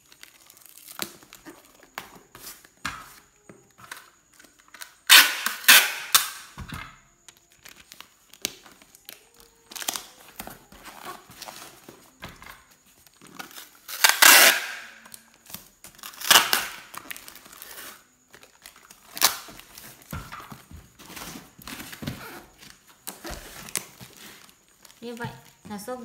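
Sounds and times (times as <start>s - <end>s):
plastic wrap crinkling: 0.0s - 2.7s, 7.2s - 26.0s
packing tape tearing: 3.9s - 6.6s, 7.5s - 11.7s, 13.2s - 25.0s.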